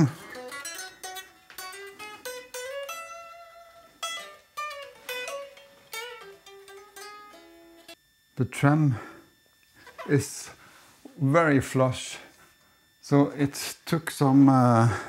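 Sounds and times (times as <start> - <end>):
electric guitar notes and chords: 0.0 - 8.0.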